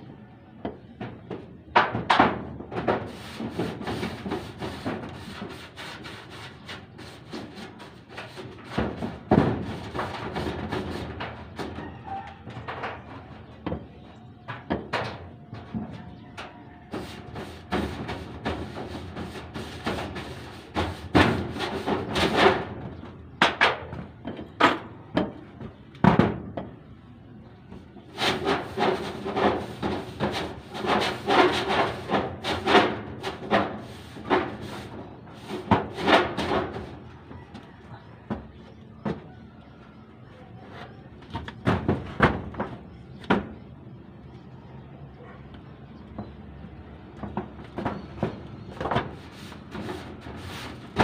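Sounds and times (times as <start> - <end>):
brush scraping metal roof sheet: 1.8 - 13.5, 16.4 - 23.8, 28.0 - 37.1, 47.8 - 51.0.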